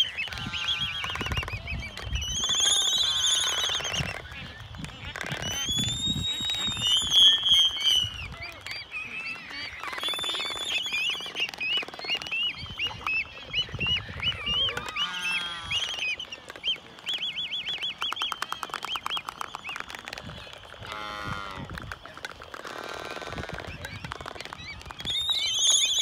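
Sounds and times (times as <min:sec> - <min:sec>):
albatrosses squeaky calls: 0:00.0 - 0:16.8.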